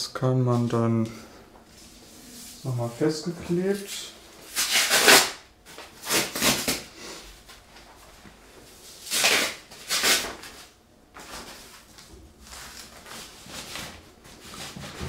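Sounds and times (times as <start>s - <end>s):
cloth cover rustling: 9.0s - 15.0s.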